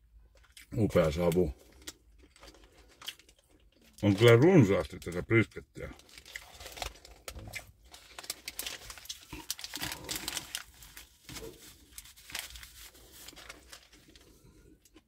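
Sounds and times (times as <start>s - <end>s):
paper wrapper crinkling: 6.0s - 14.9s.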